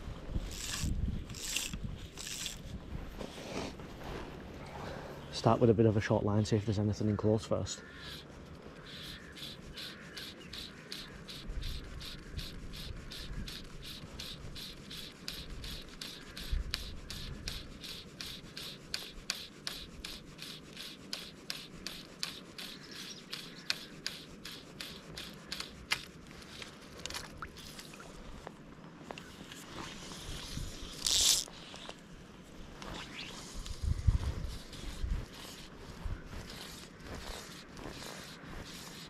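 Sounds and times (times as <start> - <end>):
wind rumble on microphone: 0.0 - 3.2, 33.6 - 35.4
fishing line rasping through fingers: 0.4 - 3.3, 7.8 - 28.1, 29.2 - 32.0.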